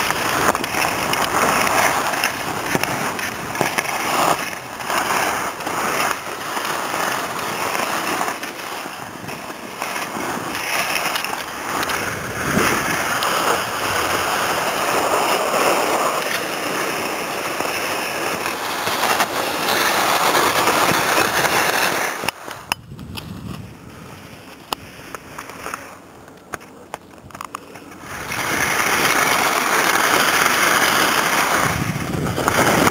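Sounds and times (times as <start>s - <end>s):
skis scraping over snow: 0.0s - 32.9s
wind on microphone: 11.7s - 16.1s, 22.6s - 24.4s, 31.4s - 32.9s.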